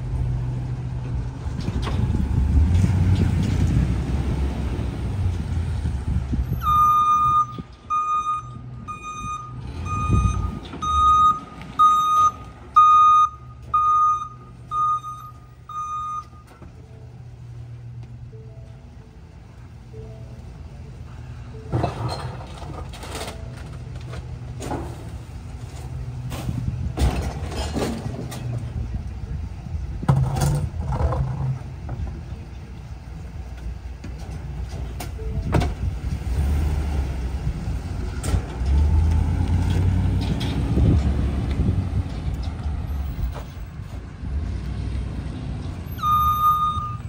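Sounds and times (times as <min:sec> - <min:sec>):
knocks and bangs from cart: 0:26.2 - 0:28.6.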